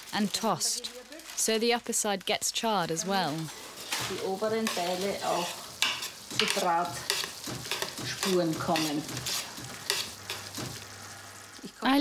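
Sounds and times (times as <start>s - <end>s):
vegetables sizzling: 0.0s - 12.0s
spatula scraping roasting tray: 3.2s - 11.1s.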